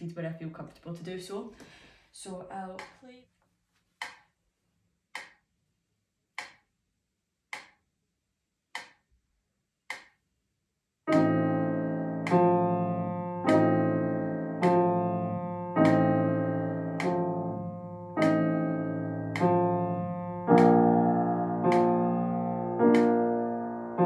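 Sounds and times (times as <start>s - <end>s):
metronome ticking: 11.1s - 11.6s, 17.0s - 17.3s, 20.4s - 20.9s
slow piano chords: 11.1s - 24.0s.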